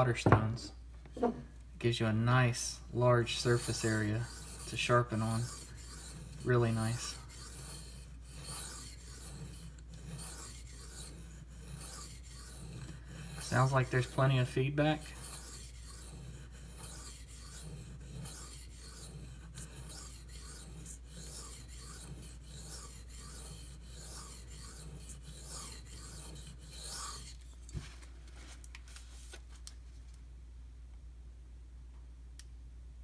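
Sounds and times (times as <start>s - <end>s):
knife rasping on whetstone: 3.0s - 27.8s.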